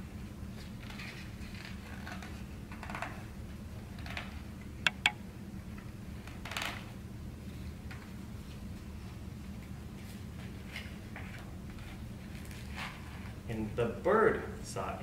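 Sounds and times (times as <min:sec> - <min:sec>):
sharp clicks: 0:04.8 - 0:05.2.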